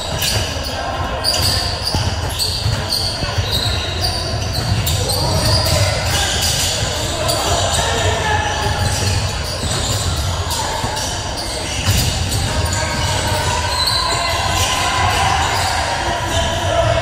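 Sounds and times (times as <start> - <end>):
basketball bouncing on court: 0.0 - 17.0
players and spectators voices: 0.0 - 17.0.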